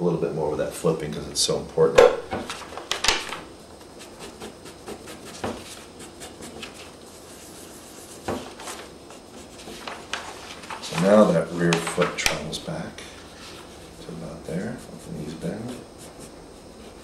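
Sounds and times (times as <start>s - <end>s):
paper sheets rustling: 2.3s - 3.6s, 5.2s - 14.0s
pencil sketching on paper: 4.0s - 8.4s, 13.4s - 17.0s.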